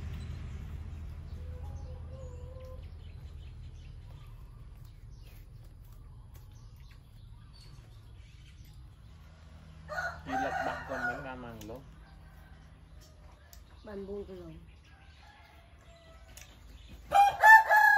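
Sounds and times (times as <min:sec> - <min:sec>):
rooster crowing: 0:09.9 - 0:11.5, 0:17.1 - 0:17.9.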